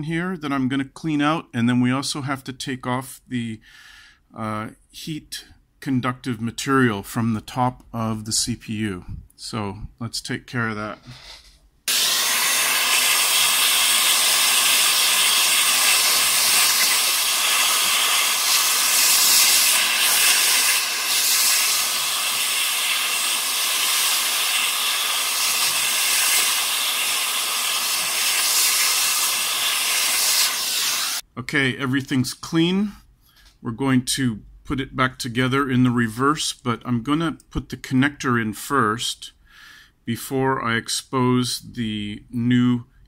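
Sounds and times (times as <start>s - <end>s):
air rushing from cleaning nozzle: 11.9s - 31.2s.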